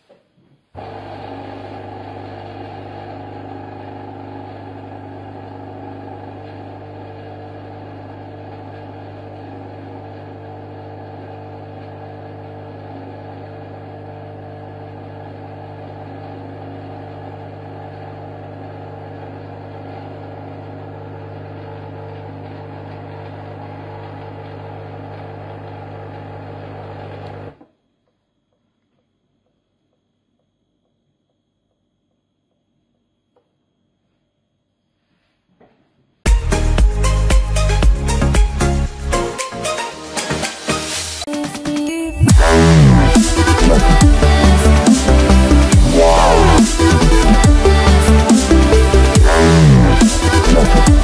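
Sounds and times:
espresso machine pump humming: 0.8 - 27.6, 42.2 - 51.0.

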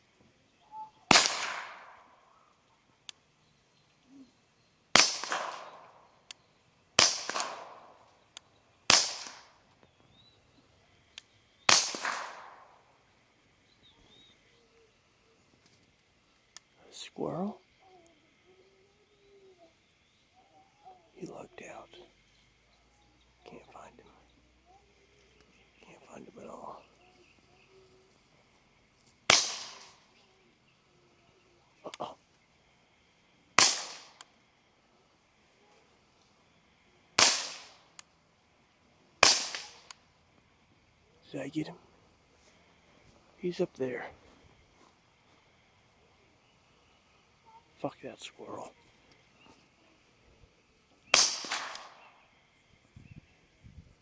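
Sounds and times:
suppressed pistol shots with echo: 1.1 - 2.1, 5.0 - 6.0, 7.0 - 8.0, 8.9 - 9.5, 11.7 - 12.7, 29.3 - 30.0, 33.6 - 34.2, 37.2 - 37.8, 39.2 - 39.9, 51.1 - 52.1.

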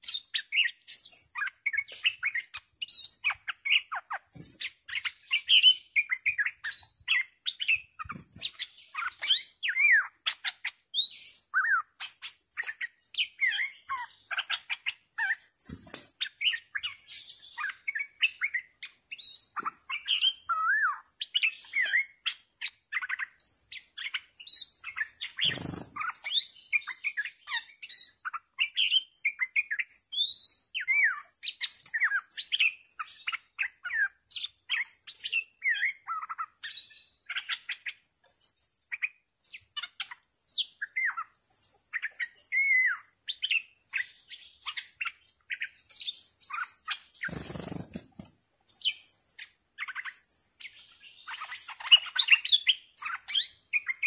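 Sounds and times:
birds chirping and whistling: 0.0 - 54.0.

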